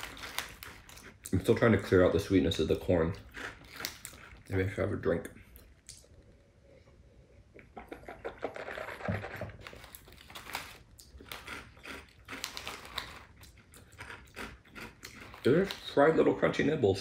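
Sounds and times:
plastic snack packet crinkling: 0:00.0 - 0:04.7, 0:07.9 - 0:16.5.

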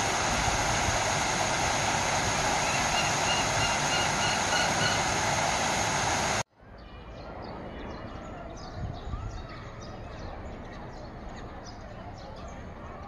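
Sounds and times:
waterfall rushing: 0:00.0 - 0:06.4.

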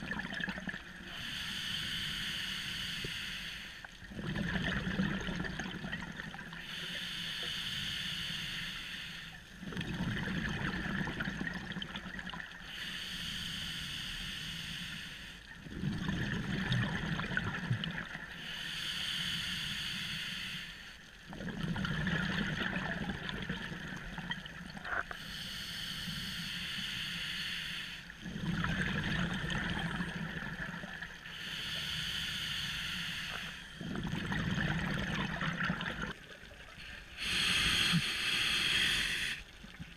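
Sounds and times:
exhaled bubbles gurgling: 0:00.0 - 0:01.4, 0:04.0 - 0:06.7, 0:09.6 - 0:12.7, 0:15.5 - 0:18.4, 0:21.2 - 0:25.2, 0:28.2 - 0:31.3, 0:33.3 - 0:39.9
regulator inhale hissing: 0:01.0 - 0:04.0, 0:06.6 - 0:09.6, 0:12.6 - 0:15.5, 0:18.3 - 0:21.1, 0:25.1 - 0:28.2, 0:31.2 - 0:33.8, 0:36.8 - 0:39.8.

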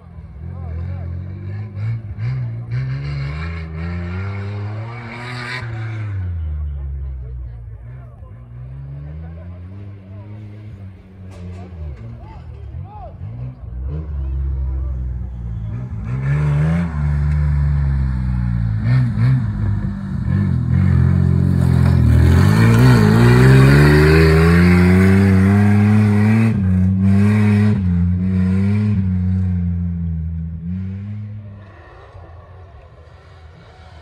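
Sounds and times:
engine revving hard: 0:20.3 - 0:29.7.

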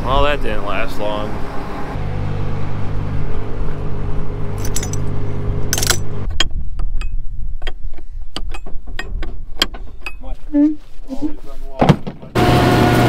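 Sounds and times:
combine harvester humming: 0:00.0 - 0:06.4, 0:12.3 - 0:13.0
light metallic rattles: 0:04.6 - 0:10.4.

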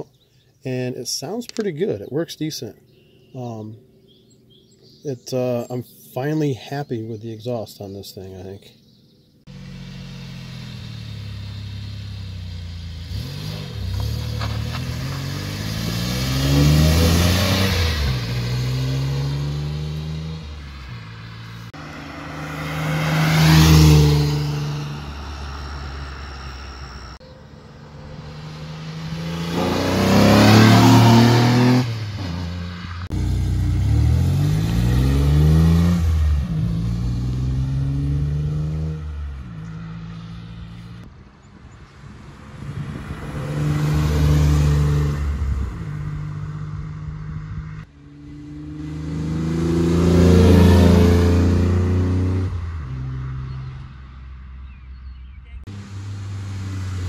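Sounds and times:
car exhaust drive-by: 0:09.5 - 0:41.2.

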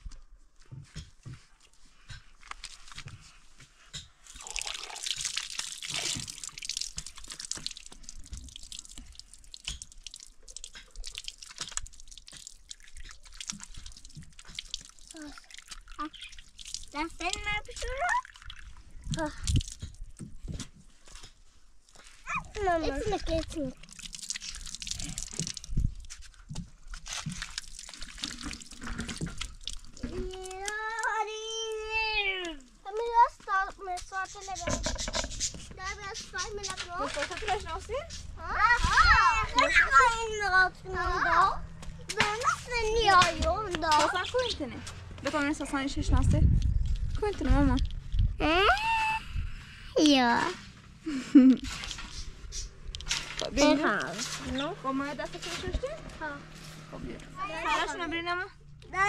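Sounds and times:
water dripping: 0:04.0 - 0:41.1
tap water splashing on hands: 0:04.3 - 0:20.7, 0:23.3 - 0:32.0.

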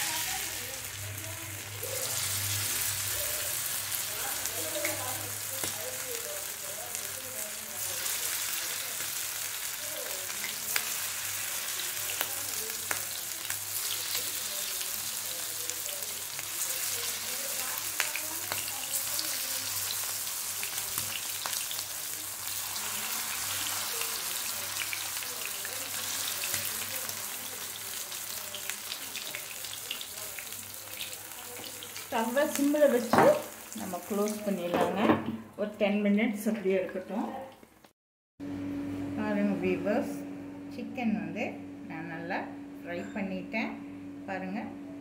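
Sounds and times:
chicken deep-frying in oil: 0:00.0 - 0:35.2.

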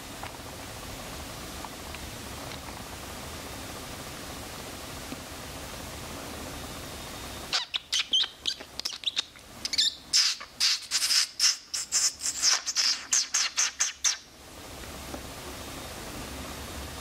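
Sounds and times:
small birds chirping: 0:07.4 - 0:14.3.

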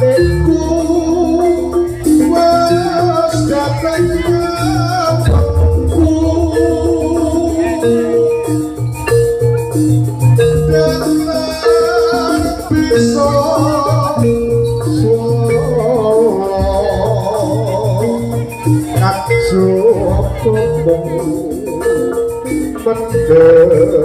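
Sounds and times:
high wavering melody: 0:00.0 - 0:24.0
metal-keyed percussion notes: 0:00.0 - 0:24.0
pulsing drum pattern: 0:00.0 - 0:24.0.

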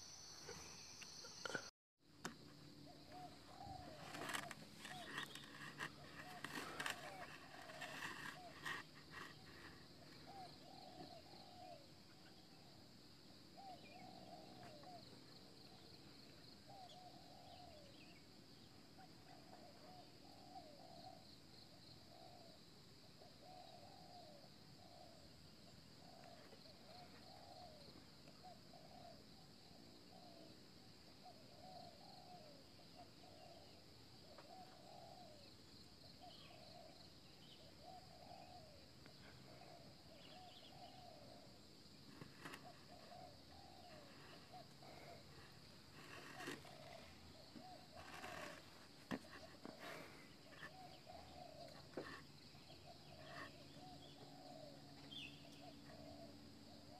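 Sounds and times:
dove cooing: 0:02.9 - 0:12.8, 0:13.6 - 0:15.8, 0:23.2 - 0:25.3, 0:26.0 - 0:29.5, 0:31.2 - 0:35.5, 0:36.2 - 0:56.9.

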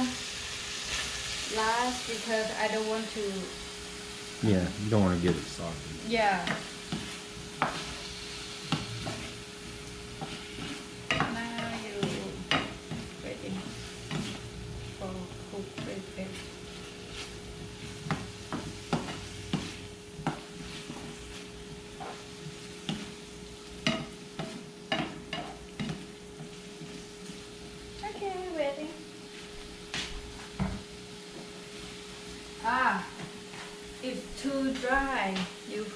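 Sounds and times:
stir-fry sizzling: 0:00.0 - 0:35.9
spatula clacking and scraping pan: 0:06.4 - 0:14.4, 0:15.7 - 0:27.4.

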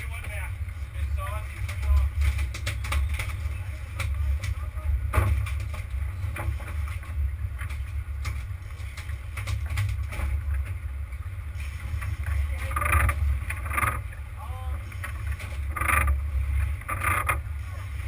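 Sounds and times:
boat engine low rumble: 0:00.0 - 0:18.0.

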